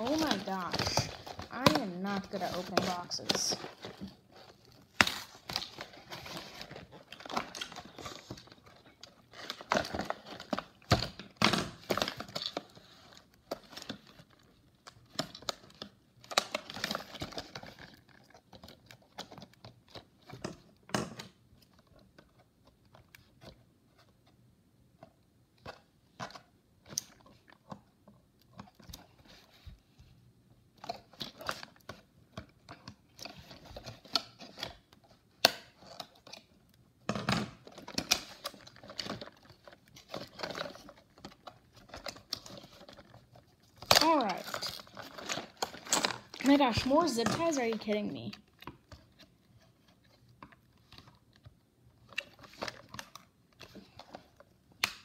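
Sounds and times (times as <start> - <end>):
cardboard flaps tearing and crinkling: 0.0 - 12.8, 37.6 - 47.0.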